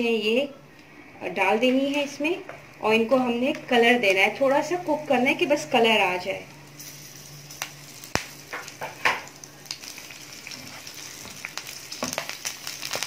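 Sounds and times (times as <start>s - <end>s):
chillies sizzling in hot oil: 4.6s - 13.0s.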